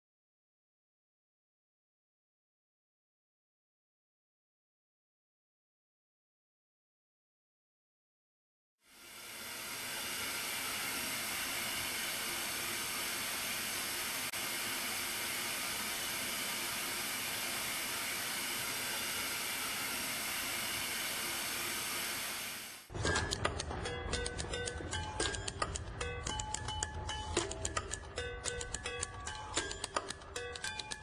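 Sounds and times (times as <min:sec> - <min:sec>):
music with a beat: 0:23.0 - 0:31.0.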